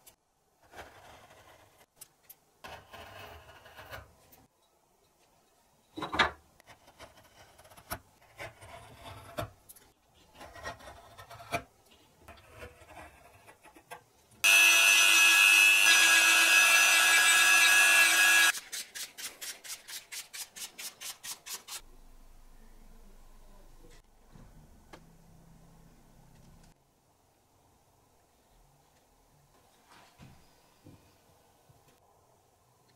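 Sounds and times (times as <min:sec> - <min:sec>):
power tool running: 0:14.4 - 0:18.6
filing wood: 0:14.4 - 0:21.8.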